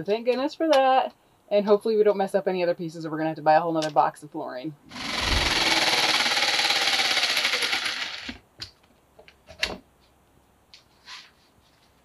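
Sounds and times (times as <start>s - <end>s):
jigsaw cutting vinyl plank: 4.9s - 8.4s.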